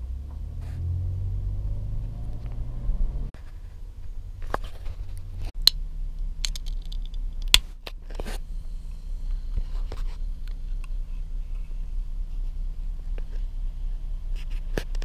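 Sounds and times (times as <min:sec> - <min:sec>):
car engine idling: 0:00.0 - 0:15.0
sharp clicks and handling noises: 0:06.4 - 0:08.4.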